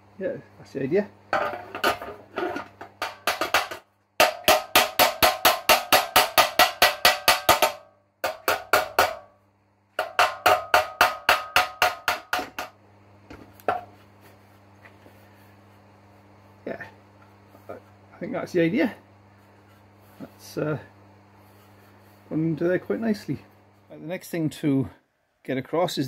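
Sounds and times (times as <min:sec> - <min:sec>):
hammer blows on sheet steel: 0:03.0 - 0:09.4, 0:10.0 - 0:12.8.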